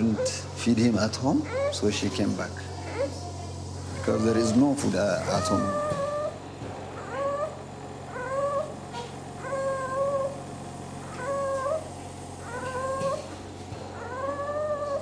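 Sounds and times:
small child crying: 0:01.3 - 0:03.3, 0:03.9 - 0:06.4, 0:07.0 - 0:10.4, 0:11.0 - 0:13.4, 0:14.0 - 0:15.0.

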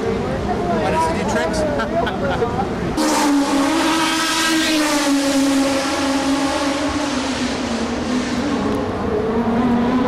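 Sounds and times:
racing car engines at high revs: 0:02.9 - 0:10.0.

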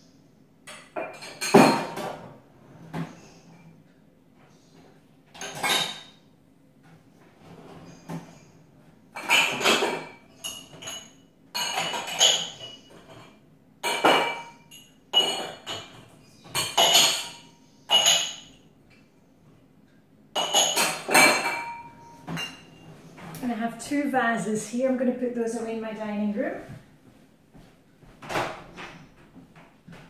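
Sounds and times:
drinking glasses clinking: 0:16.6 - 0:18.5.

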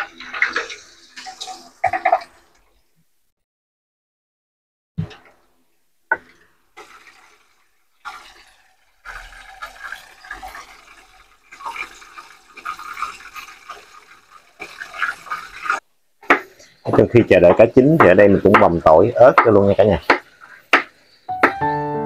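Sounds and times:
fish sizzling in hot oil: 0:06.8 - 0:21.4.

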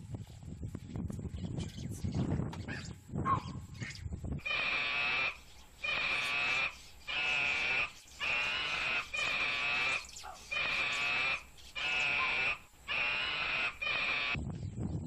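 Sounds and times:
animal calling on a high pitch: 0:02.8 - 0:14.4.

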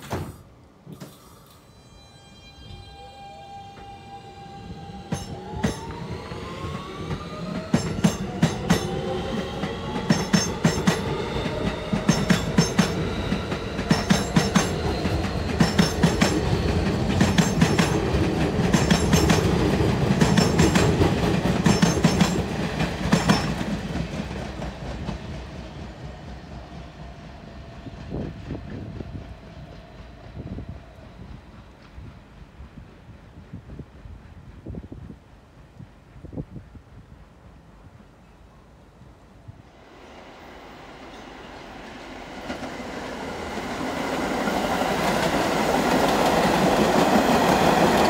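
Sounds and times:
subway traction motor whine: 0:00.9 - 0:32.8
train rumble: 0:03.7 - 0:48.0.

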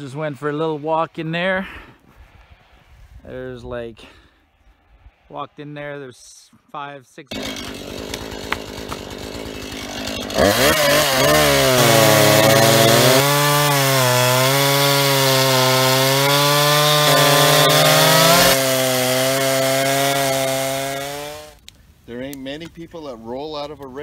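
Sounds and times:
chainsaw cutting wood: 0:07.3 - 0:21.8.

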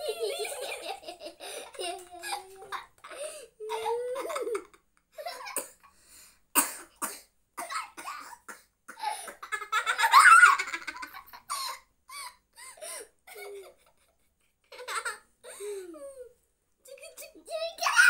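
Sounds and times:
young children laughing: 0:00.0 - 0:05.6, 0:09.4 - 0:12.4, 0:13.3 - 0:16.3.

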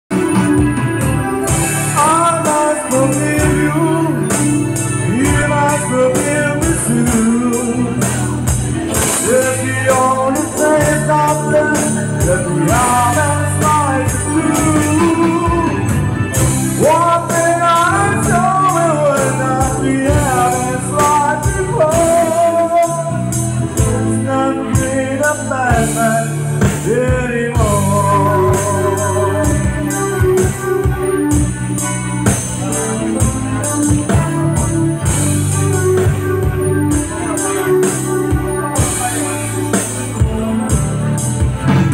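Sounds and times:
bass line: 0:00.0 - 0:41.9
keyboards: 0:00.0 - 0:41.9
acoustic guitar: 0:00.1 - 0:41.9
man singing: 0:00.1 - 0:41.9.

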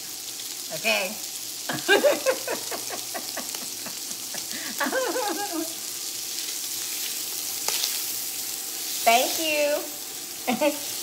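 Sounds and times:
sausage sizzling in oil: 0:00.0 - 0:11.0
utensil stirring pieces: 0:06.2 - 0:11.0.

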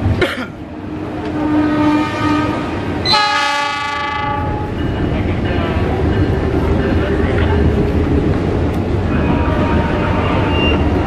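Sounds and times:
locomotive engine and train rumble: 0:00.0 - 0:11.0
locomotive air horn blasts: 0:01.3 - 0:04.7, 0:09.1 - 0:10.9.

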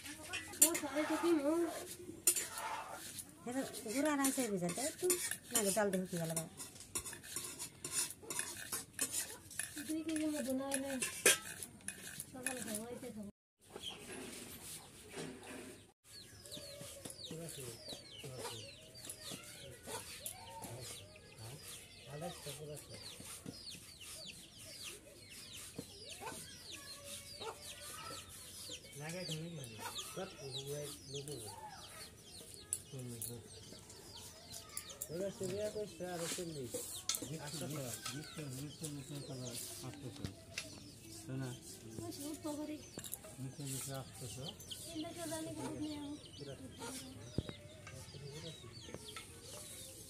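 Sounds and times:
chickens peeping: 0:15.7 - 0:50.0
chickens clucking: 0:22.9 - 0:50.0.

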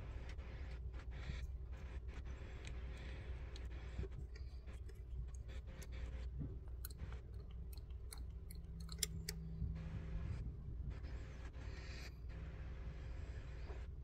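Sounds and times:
small metallic clicks and taps: 0:03.5 - 0:09.4.

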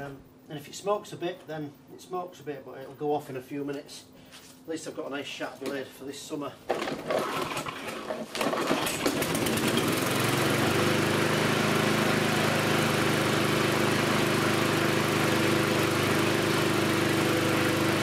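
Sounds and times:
lawnmower engine running: 0:06.7 - 0:18.0.

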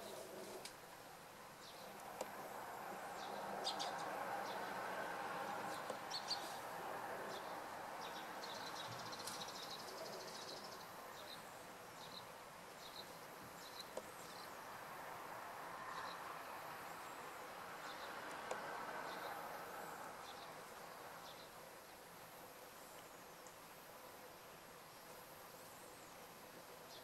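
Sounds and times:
low background hiss: 0:00.0 - 0:27.0
small birds chirping: 0:01.6 - 0:15.1, 0:15.8 - 0:27.0.

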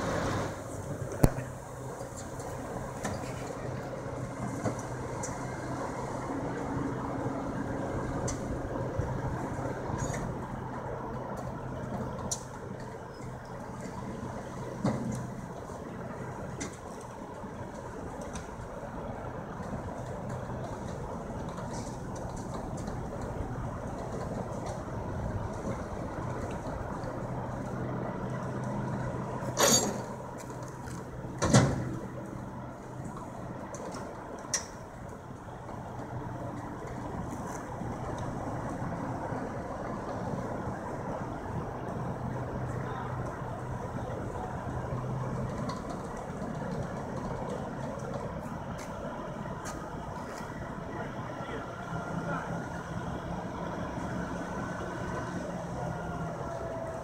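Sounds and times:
heavy diesel engines droning: 0:00.0 - 0:57.0
heavy metal clank: 0:29.5 - 0:30.2.

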